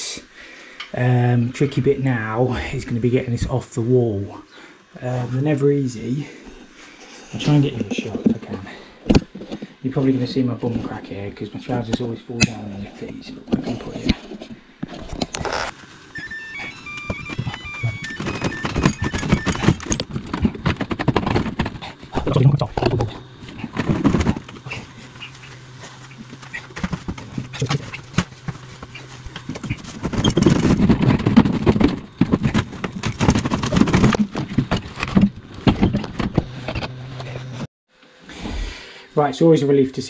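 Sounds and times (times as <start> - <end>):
metal casing knocking and scraping: 17.0 - 37.4.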